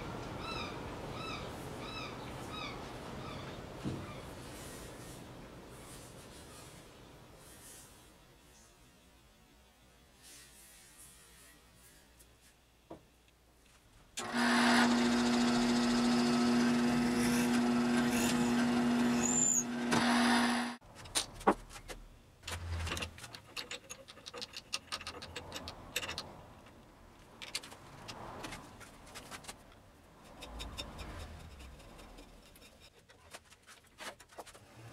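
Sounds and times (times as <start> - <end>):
lathe motor humming: 14.2 - 20.8
metal clicks and knocks: 22.8 - 26.8.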